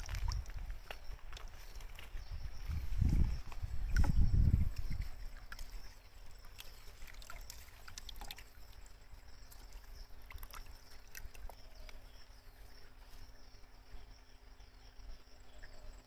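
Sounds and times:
small drips and ticks: 0.0s - 13.2s
water splashing in plastic tub: 3.8s - 8.9s, 9.5s - 11.9s.

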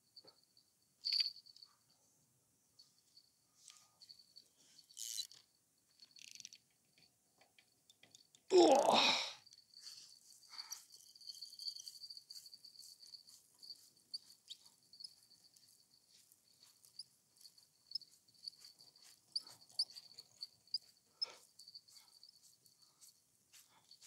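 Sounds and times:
fishing reel whining: 4.9s - 5.4s
fishing reel clicks: 5.0s - 5.4s.

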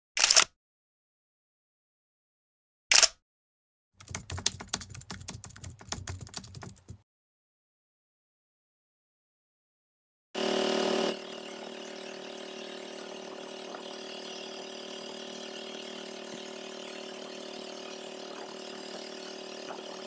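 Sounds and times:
small boat engine running: 10.4s - 20.0s.

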